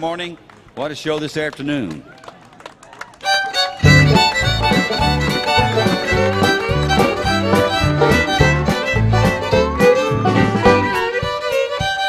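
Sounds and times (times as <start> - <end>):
fiddle-led country music: 3.2 - 12.0.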